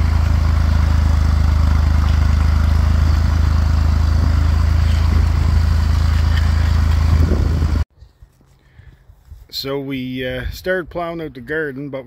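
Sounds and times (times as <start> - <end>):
tractor engine running: 0.0 - 7.9.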